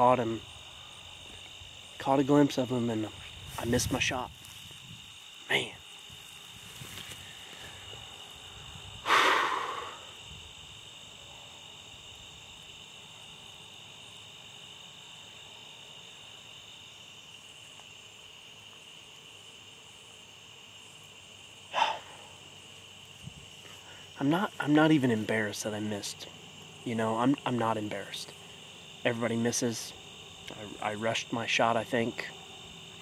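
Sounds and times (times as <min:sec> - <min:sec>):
insects chirring: 0:00.0 - 0:33.0
person exhaling heavily: 0:09.0 - 0:10.2, 0:21.7 - 0:22.4.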